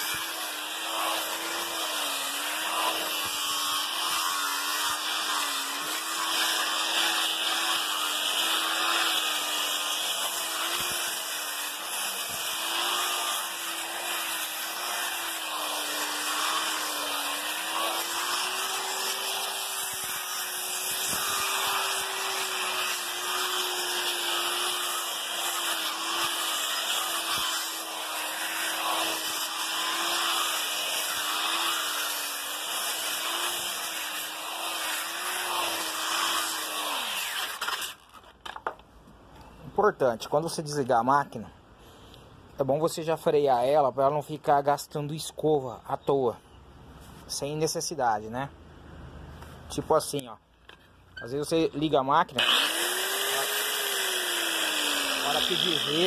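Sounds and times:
angle grinder sanding wood: 0:00.0 - 0:38.2, 0:51.4 - 0:56.0.

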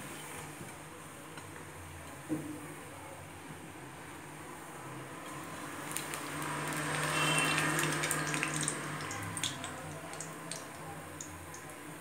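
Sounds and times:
food deep-frying in hot oil: 0:03.8 - 0:12.0.

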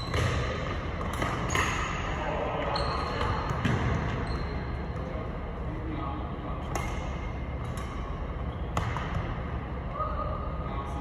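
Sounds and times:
rackets hitting shuttlecock: 0:00.1 - 0:02.0, 0:06.6 - 0:09.4.

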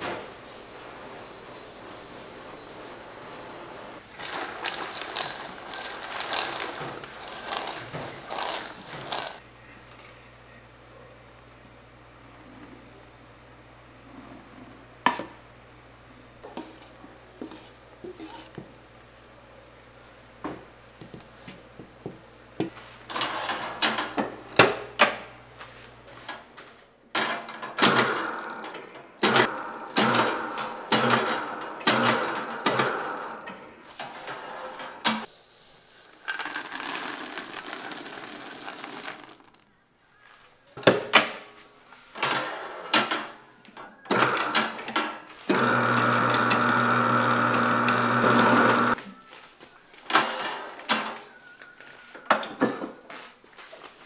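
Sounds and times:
nuts pouring from metal tray: 0:04.1 - 0:09.4, 0:36.2 - 0:39.6
mixer motor humming: 0:45.5 - 0:49.0
stand mixer beating dough: 0:45.6 - 0:49.0.

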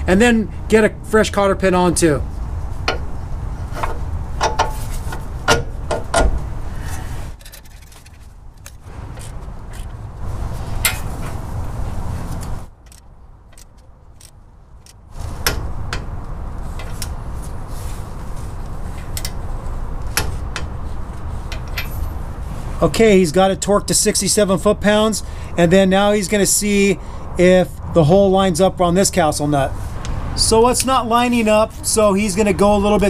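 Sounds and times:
wrench clicking and knocking on metal: 0:03.8 - 0:04.8.

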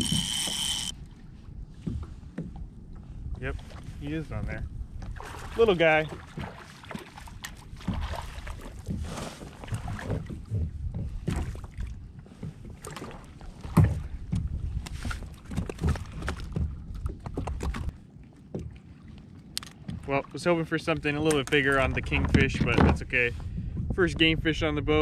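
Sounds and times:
wind rumbling on microphone: 0:00.0 - 0:20.1, 0:20.9 - 0:25.0
water against plastic kayak: 0:00.0 - 0:25.0
fishing tackle knocks and rattles: 0:13.6 - 0:17.9, 0:21.2 - 0:23.2.

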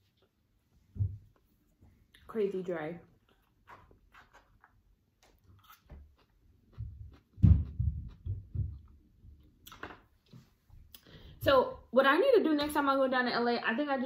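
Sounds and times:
dull thuds of chewing: 0:05.2 - 0:09.5.

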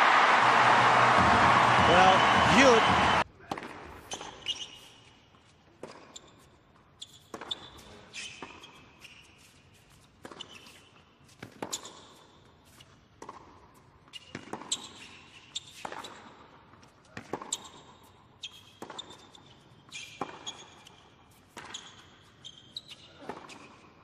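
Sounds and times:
shoe squeaks on court: 0:04.0 - 0:13.0, 0:14.1 - 0:24.0.

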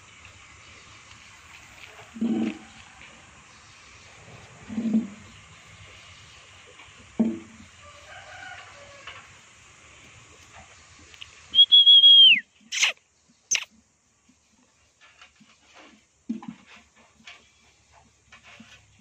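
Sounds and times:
high whistle: 0:11.5 - 0:13.7.

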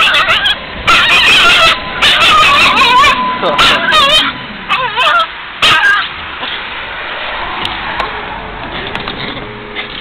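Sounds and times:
small dog whining and yelping: 0:00.0 - 0:06.6
tram background noise: 0:00.0 - 0:10.0.

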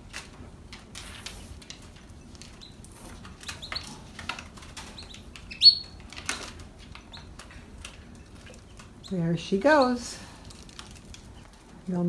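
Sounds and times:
canaries chirping: 0:02.2 - 0:11.6.

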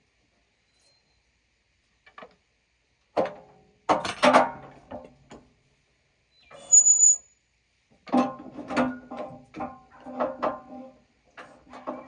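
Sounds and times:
scrape with high squeak: 0:06.4 - 0:07.3.

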